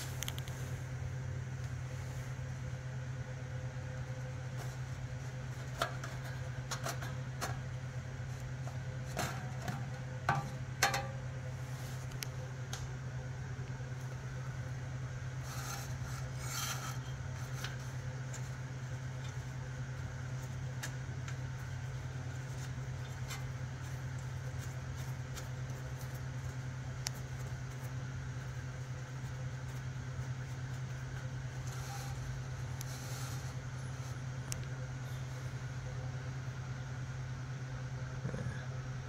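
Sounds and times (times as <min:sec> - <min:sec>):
steady low hum: 0:00.0 - 0:39.0
small clicks and handling noise: 0:00.1 - 0:00.6
dipstick rustling in filler tube: 0:03.8 - 0:12.9, 0:13.8 - 0:35.8.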